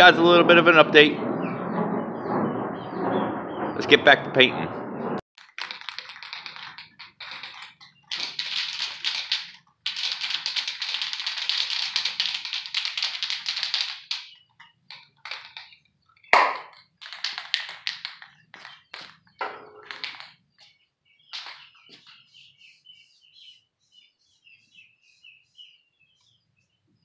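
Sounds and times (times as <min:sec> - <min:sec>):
mixing ball rattling in can: 0:05.4 - 0:20.5, 0:21.3 - 0:22.5.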